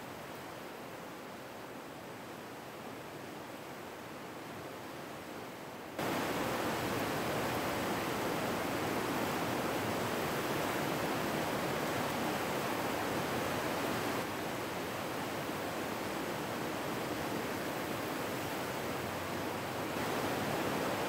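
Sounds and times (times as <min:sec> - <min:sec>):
river rushing through rapids: 0:00.0 - 0:21.0.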